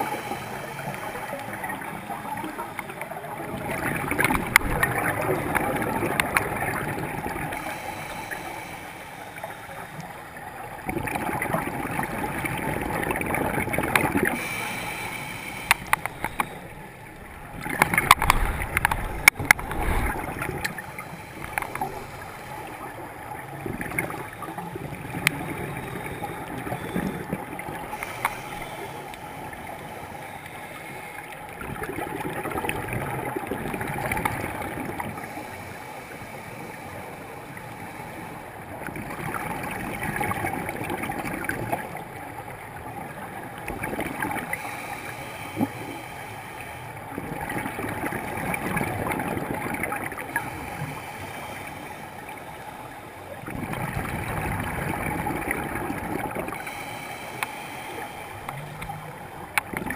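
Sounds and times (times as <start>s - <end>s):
underwater exhaled bubbles gurgling: 0.0s - 35.7s, 36.8s - 59.9s
sharp crackling clicks: 15.6s - 16.6s, 17.6s - 20.8s.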